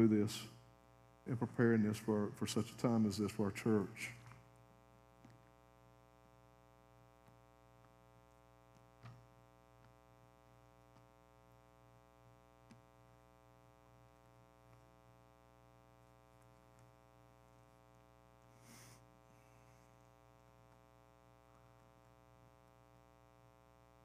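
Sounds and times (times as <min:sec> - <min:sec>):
electrical hum: 0:00.0 - 0:24.0.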